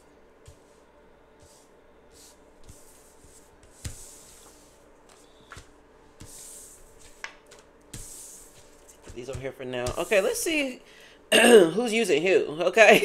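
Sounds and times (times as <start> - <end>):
cards sliding swishes: 0.4 - 10.6.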